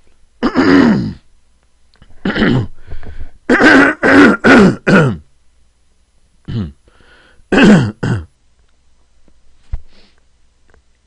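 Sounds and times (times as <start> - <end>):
man coughing and clearing throat: 0.4 - 1.2, 2.2 - 2.8, 3.5 - 5.3, 6.5 - 6.8, 7.5 - 8.3.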